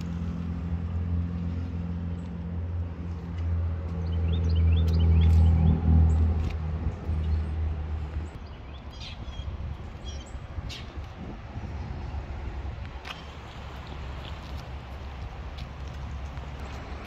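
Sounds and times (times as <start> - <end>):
vehicle engine hum: 0.0 - 17.0
small birds chirping: 8.1 - 11.0.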